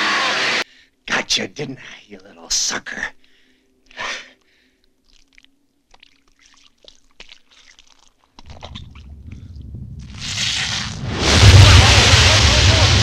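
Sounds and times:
faint steady hum: 0:00.0 - 0:10.3
low rumble: 0:08.6 - 0:13.0.

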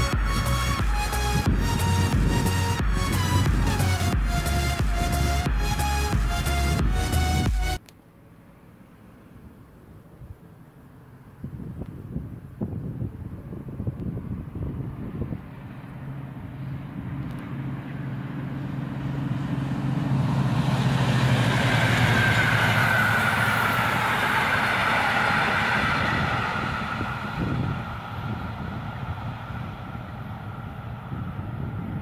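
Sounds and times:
diesel locomotive drone: 0:00.0 - 0:32.0
train coaches rolling: 0:15.6 - 0:32.0.

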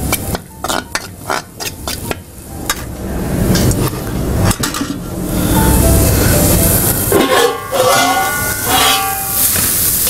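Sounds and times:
spoon scraping metal pan: 0:07.1 - 0:09.4.

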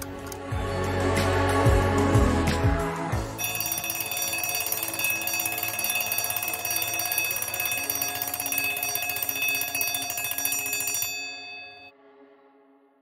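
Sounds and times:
alarm clock bell ringing: 0:03.4 - 0:11.9.

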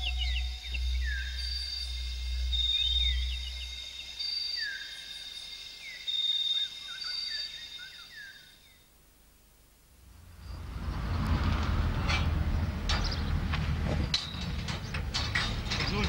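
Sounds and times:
low hum: 0:00.0 - 0:04.7, 0:09.9 - 0:16.0
bird chirps and trills: 0:00.0 - 0:08.8.

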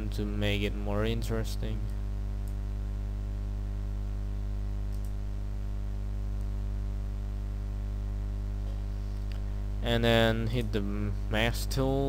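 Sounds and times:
mains hum: 0:00.0 - 0:12.0
computer mouse clicking: 0:04.9 - 0:05.2.

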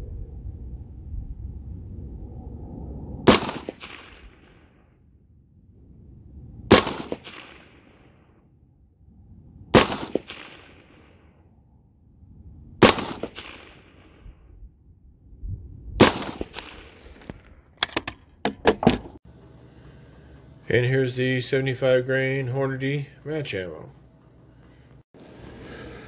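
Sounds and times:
rifle shots: 0:03.3 - 0:04.6, 0:06.7 - 0:08.0, 0:09.7 - 0:11.2, 0:12.8 - 0:14.2, 0:16.0 - 0:16.9.

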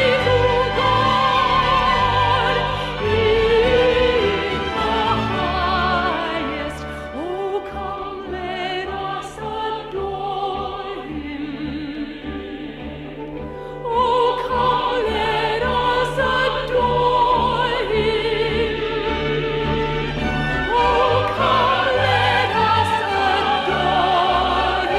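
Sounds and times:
operatic singing with vibrato: 0:00.0 - 0:24.9
orchestral accompaniment: 0:00.0 - 0:24.9.

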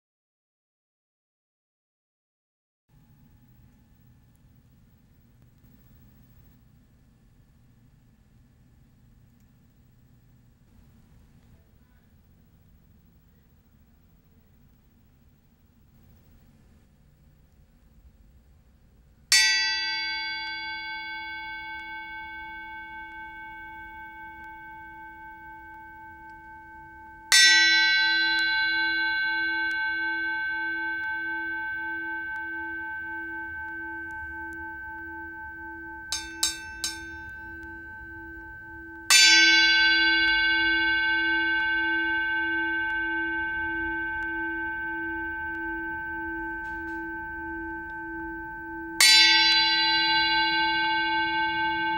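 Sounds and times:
bell cymbal struck with drumstick: 0:19.3 - 0:51.9.

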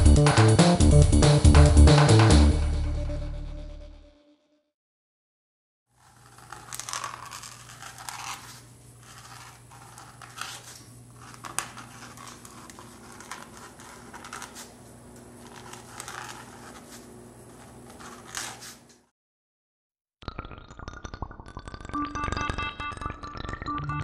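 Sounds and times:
paint marker scratching on paper: 0:06.0 - 0:18.9
rustling handling noise: 0:06.1 - 0:19.0.

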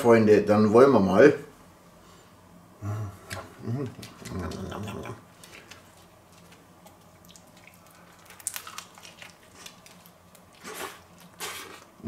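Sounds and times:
person chewing wetly: 0:03.9 - 0:12.0.

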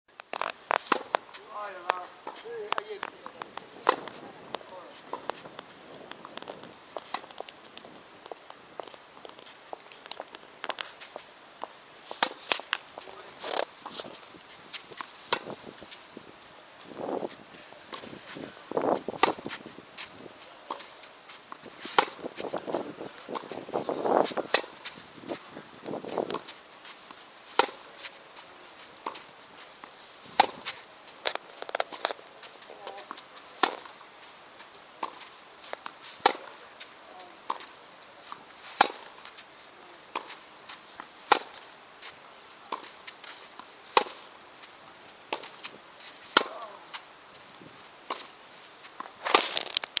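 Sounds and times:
tennis racket hitting ball: 0:00.8 - 0:01.2, 0:12.1 - 0:12.7, 0:15.0 - 0:15.6, 0:19.1 - 0:19.6, 0:21.8 - 0:23.6, 0:24.2 - 0:24.9, 0:27.5 - 0:27.8, 0:30.4 - 0:30.8, 0:31.7 - 0:33.9, 0:36.2 - 0:36.6, 0:38.3 - 0:39.2, 0:40.1 - 0:40.4, 0:41.3 - 0:41.6, 0:43.9 - 0:44.2, 0:45.3 - 0:46.8
tennis ball bouncing: 0:00.8 - 0:01.3, 0:02.2 - 0:04.2, 0:11.6 - 0:12.8, 0:14.7 - 0:15.6, 0:19.1 - 0:21.0, 0:21.9 - 0:23.6, 0:24.2 - 0:24.9, 0:26.2 - 0:26.6, 0:27.5 - 0:27.8, 0:30.4 - 0:32.2, 0:32.8 - 0:33.9, 0:35.0 - 0:36.6, 0:38.3 - 0:39.3, 0:40.1 - 0:40.4, 0:41.0 - 0:41.6, 0:42.7 - 0:43.0, 0:43.6 - 0:44.2, 0:45.3 - 0:45.7, 0:46.3 - 0:46.8.

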